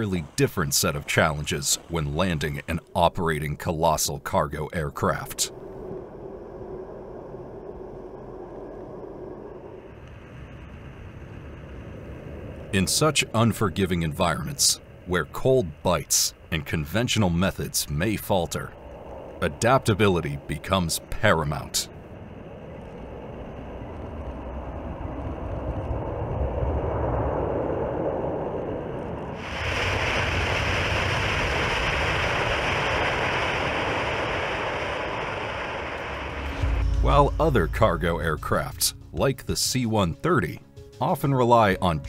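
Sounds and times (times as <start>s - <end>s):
jet engines rumbling in reverse thrust: 0.0s - 38.8s
high hiss: 5.1s - 24.4s, 29.2s - 39.1s.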